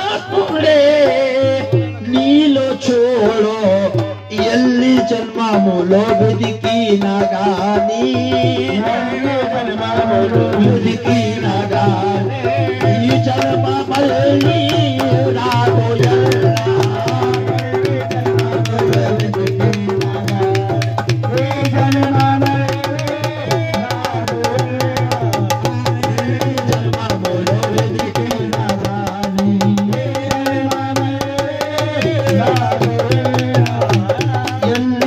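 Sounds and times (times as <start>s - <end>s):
tabla drumming: 0.0s - 35.0s.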